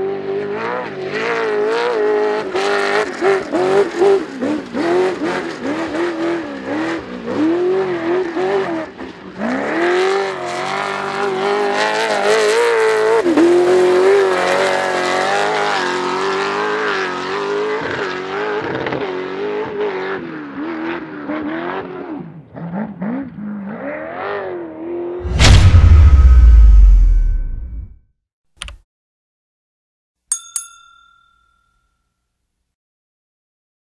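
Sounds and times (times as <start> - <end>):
racing buggy engine revving: 0.0 - 25.2.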